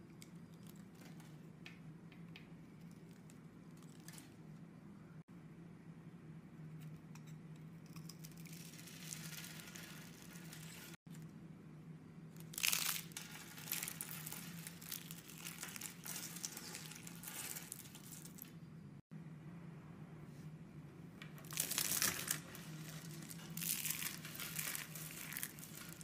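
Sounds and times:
faint steady hum: 0.0s - 26.0s
soap crackling and snapping: 12.4s - 18.5s.

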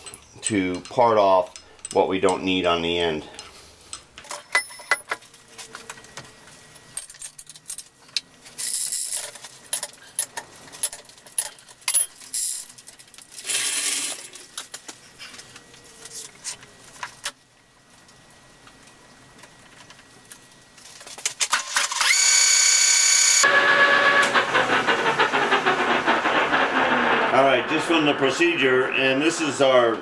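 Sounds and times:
metal chains clinking and rattling: 4.3s - 5.2s.

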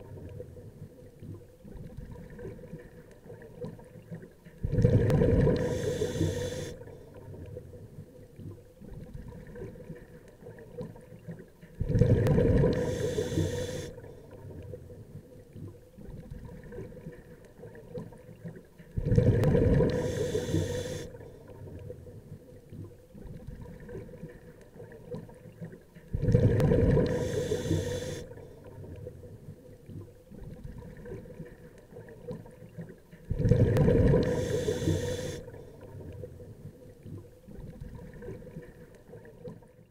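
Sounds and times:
water hissing and gurgling: 1.7s - 7.2s, 11.8s - 14.4s, 19.0s - 21.9s, 26.1s - 29.0s, 33.3s - 36.2s.

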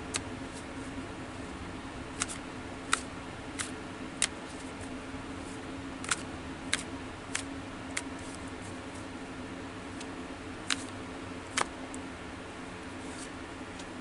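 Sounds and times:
cards being shuffled: 2.2s - 9.1s, 10.0s - 11.8s, 13.0s - 14.0s.

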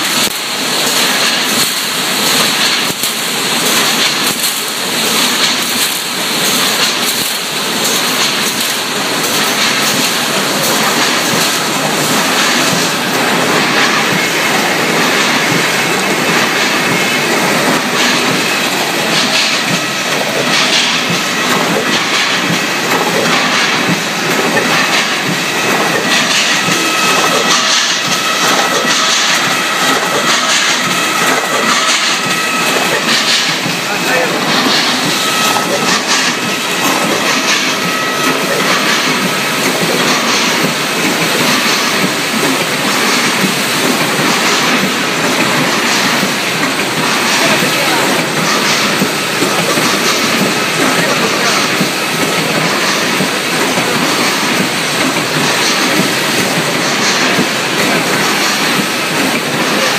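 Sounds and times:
loud steady machine din: 0.0s - 59.9s
metal cans clattering on conveyors: 0.1s - 13.0s
rapid irregular clicks: 0.1s - 59.9s.

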